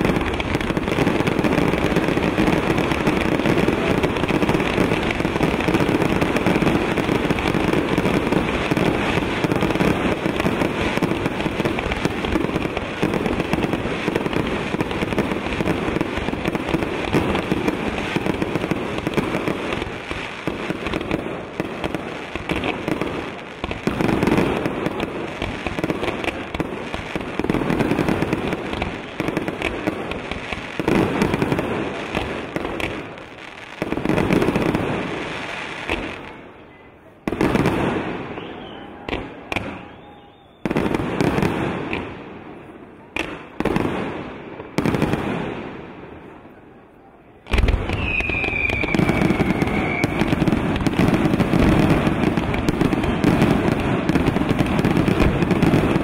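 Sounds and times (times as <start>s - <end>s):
fireworks exploding: 0.0s - 56.0s.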